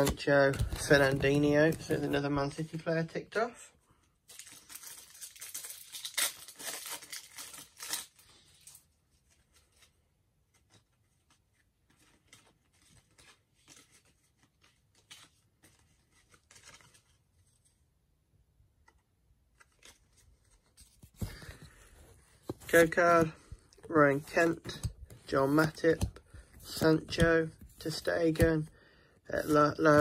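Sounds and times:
cards rustling: 0:00.0 - 0:03.1, 0:04.3 - 0:17.8, 0:18.8 - 0:30.0
foil wrapper tearing and crinkling: 0:04.3 - 0:08.7.

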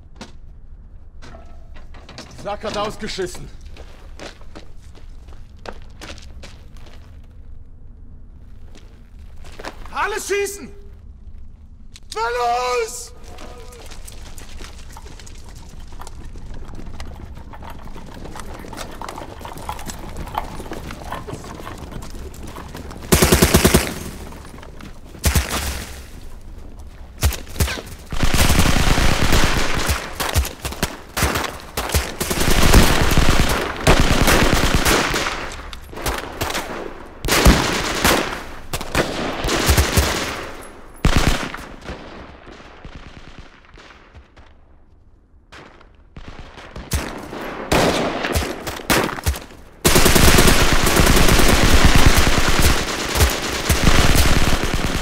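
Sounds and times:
automatic gunfire: 0:23.1 - 0:24.2.

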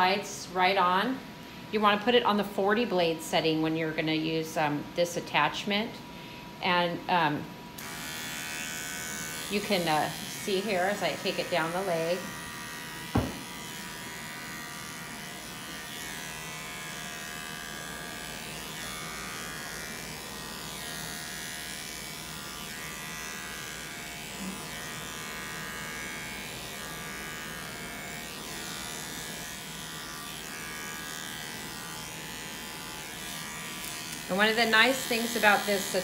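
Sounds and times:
animal clipper buzzing: 0:07.8 - 0:36.0.

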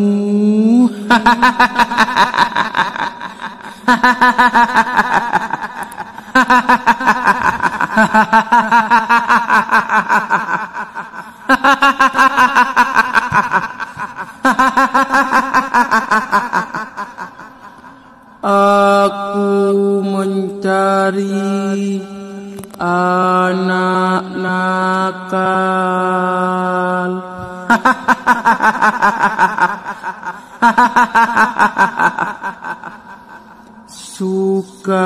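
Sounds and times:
woman's cackling laugh: 0:01.1 - 0:18.0, 0:27.7 - 0:33.5.

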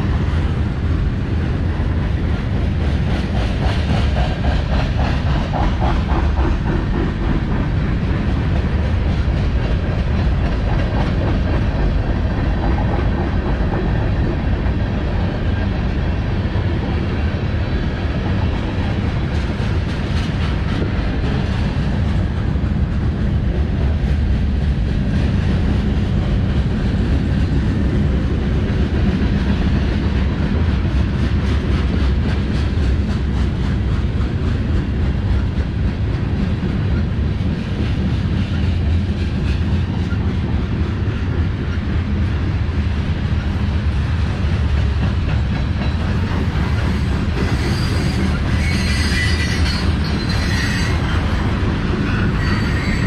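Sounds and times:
freight train wheels rumbling on rail: 0:00.0 - 0:53.0
high wheel squeal: 0:47.5 - 0:51.4, 0:52.0 - 0:53.0.

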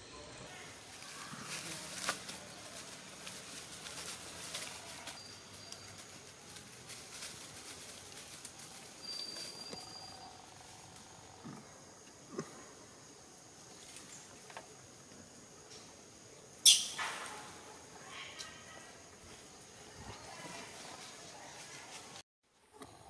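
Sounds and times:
dry leaves crackling and rustling: 0:00.5 - 0:11.2
high whistles: 0:09.0 - 0:10.4.

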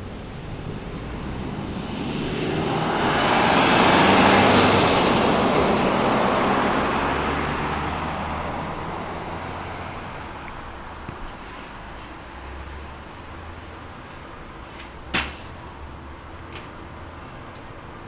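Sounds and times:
vehicle passing by: 0:00.0 - 0:13.8.

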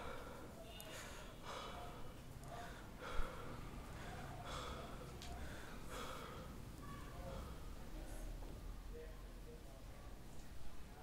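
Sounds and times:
man breathing heavily: 0:00.0 - 0:07.8.

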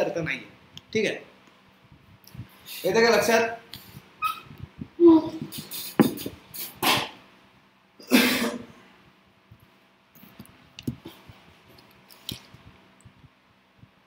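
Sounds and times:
man clearing his throat: 0:08.0 - 0:08.7.

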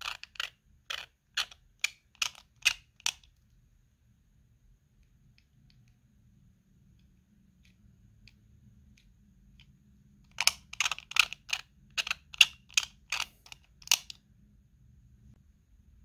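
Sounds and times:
sharp plastic clicks: 0:10.3 - 0:14.2.

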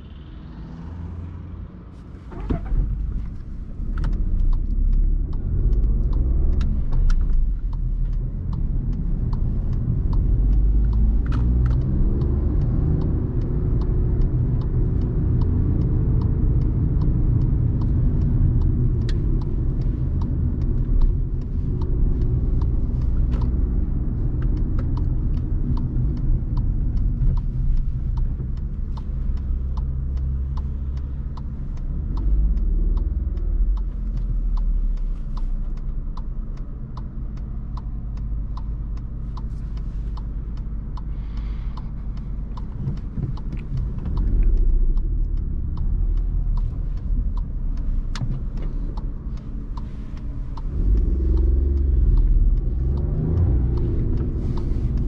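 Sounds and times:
car engine while driving: 0:00.0 - 0:55.0
low road rumble: 0:00.0 - 0:55.0
small sharp ticks: 0:03.3 - 0:55.0.

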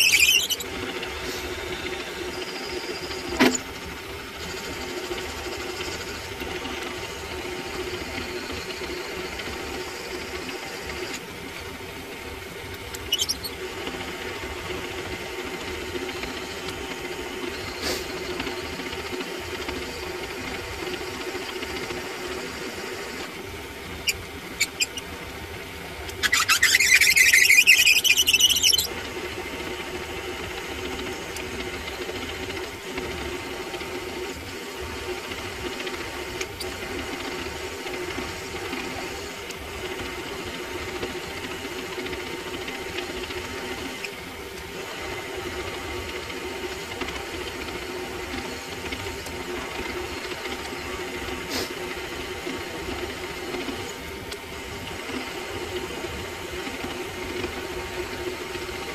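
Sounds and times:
drill bit squealing: 0:00.0 - 0:03.8, 0:12.9 - 0:13.8, 0:24.0 - 0:25.1, 0:26.1 - 0:29.1
lathe running low hum: 0:00.0 - 0:58.9.

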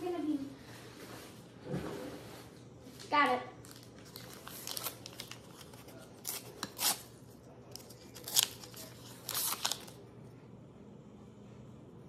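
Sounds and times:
paper wrapper tearing and crinkling: 0:03.6 - 0:10.0.

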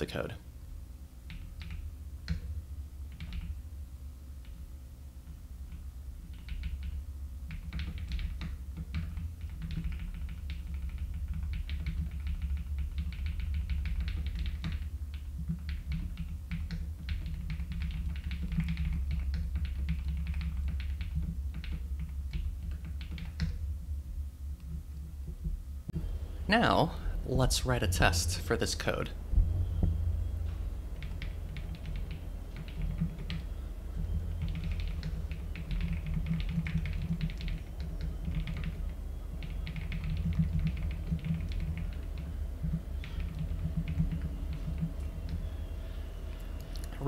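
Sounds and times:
steady low hum: 0:00.0 - 0:47.0
computer keyboard typing: 0:01.3 - 0:02.5, 0:03.1 - 0:03.6, 0:05.7 - 0:23.6, 0:31.0 - 0:45.4.

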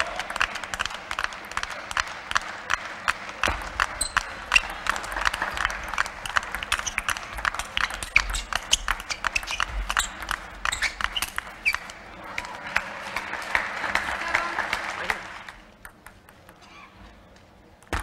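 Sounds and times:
low rumble in hall: 0:00.0 - 0:18.0
ping pong ball clicking off bats: 0:06.2 - 0:11.9.

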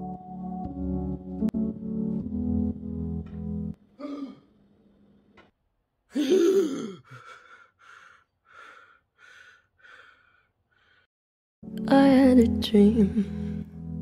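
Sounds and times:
man gasping for air: 0:04.0 - 0:04.5, 0:06.1 - 0:11.1
man breathing hard: 0:06.1 - 0:11.1.

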